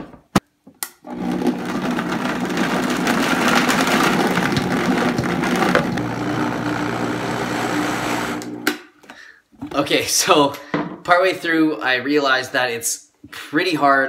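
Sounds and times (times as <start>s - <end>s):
blender grinding: 1.0s - 8.7s.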